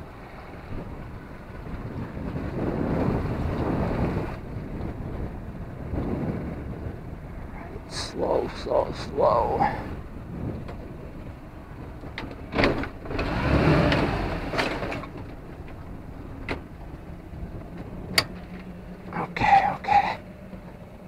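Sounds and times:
outboard motor running: 0:00.0 - 0:21.0
rushing noise: 0:18.8 - 0:20.4.

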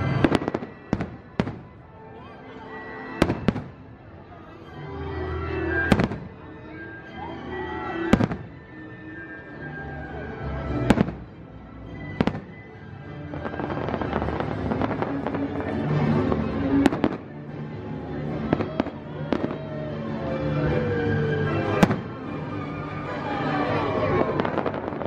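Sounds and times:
fireworks bangs: 0:00.0 - 0:01.8, 0:03.2 - 0:03.9, 0:05.8 - 0:06.4, 0:08.1 - 0:08.6, 0:10.8 - 0:11.3, 0:12.2 - 0:12.6, 0:13.3 - 0:17.3, 0:18.4 - 0:19.8, 0:21.2 - 0:22.6, 0:23.8 - 0:25.0
fireworks crackles: 0:00.0 - 0:02.0, 0:03.0 - 0:03.9, 0:05.8 - 0:06.4, 0:08.0 - 0:08.7, 0:12.2 - 0:17.4, 0:21.3 - 0:25.0
music: 0:00.0 - 0:25.0.

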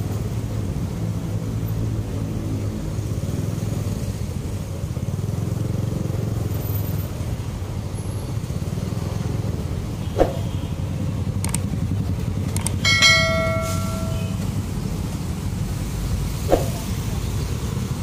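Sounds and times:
road and traffic noise: 0:00.0 - 0:18.0
bright metallic ring: 0:12.8 - 0:14.6.

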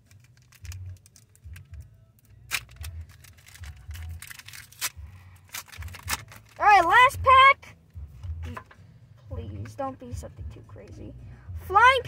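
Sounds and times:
foil wrapper crinkling: 0:00.0 - 0:06.6.

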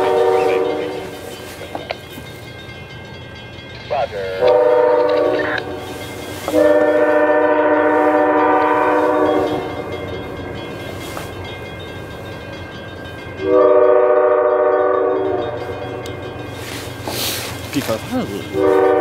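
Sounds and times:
train air horn blowing: 0:00.0 - 0:01.3, 0:04.4 - 0:09.9, 0:13.4 - 0:15.7, 0:18.5 - 0:19.0.

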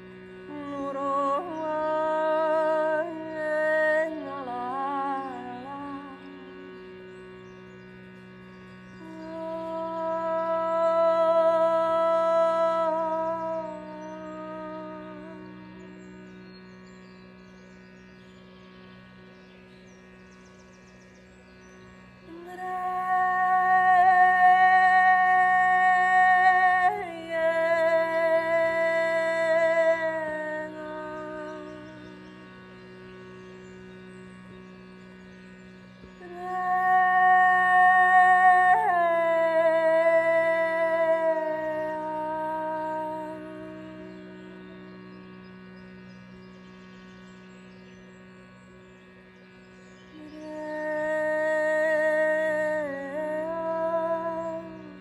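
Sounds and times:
woman singing wordless notes: 0:00.0 - 0:07.0, 0:09.0 - 0:16.2, 0:22.2 - 0:33.0, 0:36.2 - 0:45.2, 0:50.2 - 0:55.0
reedy shrutibox drone: 0:00.0 - 0:55.0.

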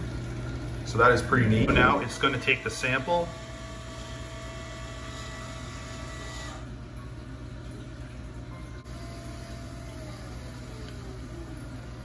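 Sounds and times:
steady low hum: 0:00.0 - 0:12.0
syringe pump motor whirring: 0:01.6 - 0:06.8, 0:08.8 - 0:12.0.

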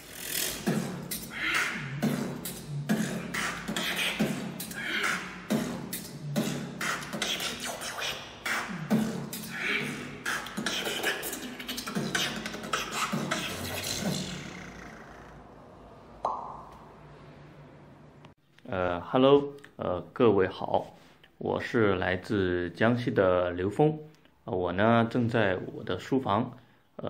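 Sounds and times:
person beatboxing: 0:00.0 - 0:15.2.

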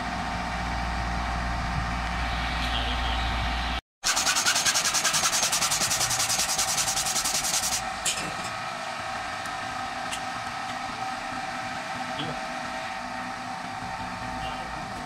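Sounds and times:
steady background hum: 0:00.0 - 0:15.0
hacksaw cutting metal: 0:04.0 - 0:08.5.

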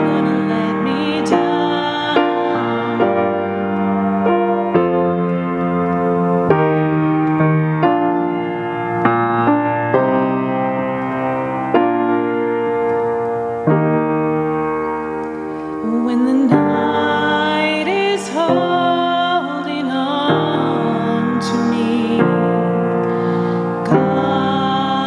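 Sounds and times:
woman singing: 0:00.0 - 0:03.7, 0:15.8 - 0:23.0, 0:23.8 - 0:25.0
piano playing slow chords: 0:00.0 - 0:25.0.

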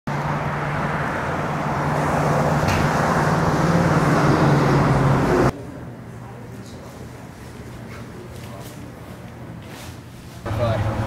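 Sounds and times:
vehicle engine hum: 0:00.1 - 0:05.7, 0:10.4 - 0:11.0
road noise: 0:00.1 - 0:11.0.

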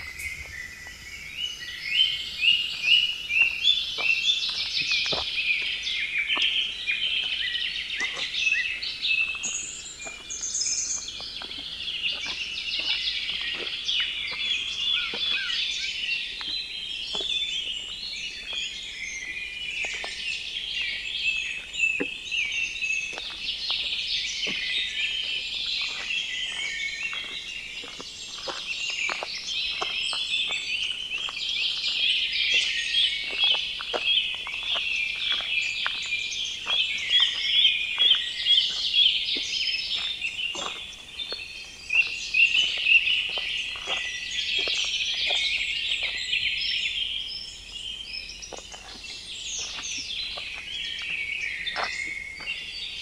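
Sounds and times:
footsteps crunching on trail: 0:00.0 - 0:53.0
forest birds singing: 0:00.0 - 0:53.0.

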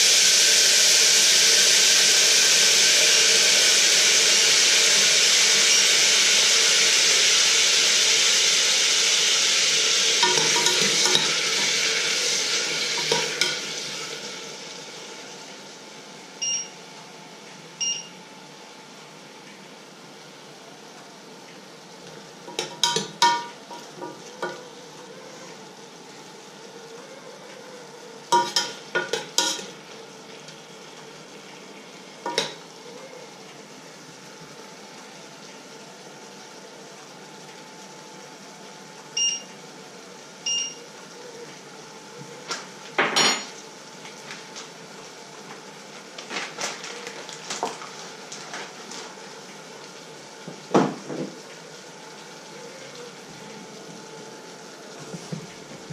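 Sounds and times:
short electronic beeps: 0:16.4 - 0:16.8, 0:17.8 - 0:18.1.

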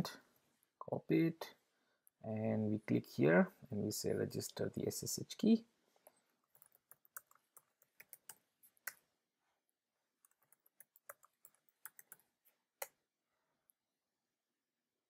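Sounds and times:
typing on computer keyboard: 0:06.5 - 0:08.4, 0:10.2 - 0:12.3.

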